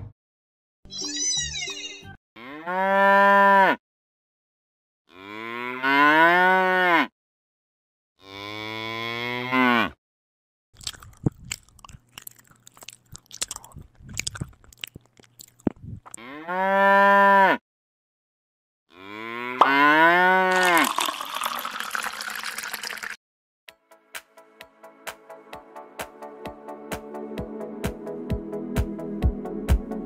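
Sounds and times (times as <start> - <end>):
cow mooing: 2.4 - 3.8, 5.1 - 7.1, 8.2 - 10.0, 16.2 - 17.6, 18.9 - 20.8.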